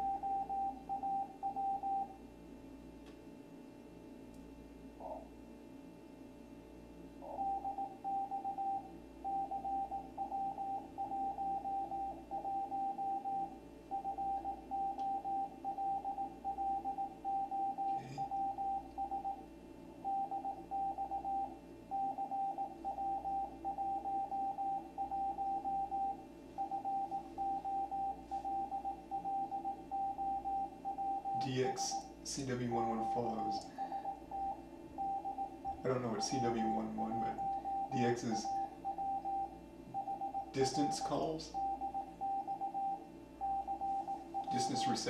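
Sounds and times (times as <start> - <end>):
morse code tone: 0.0 - 2.1, 20.0 - 45.0
receiver hum and hiss: 0.0 - 45.0.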